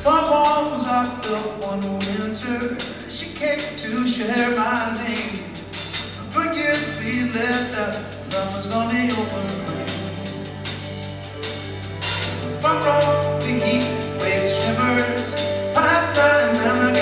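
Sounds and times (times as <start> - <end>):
live band playing: 0.0 - 17.0
drum hits: 5.0 - 17.0
person singing: 6.2 - 17.0.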